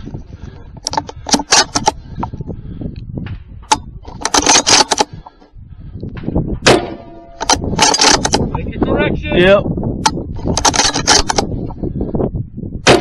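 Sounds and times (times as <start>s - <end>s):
rifle handling clicks and rattles: 0.8s - 2.4s, 3.6s - 5.5s, 7.3s - 8.6s, 10.0s - 11.6s.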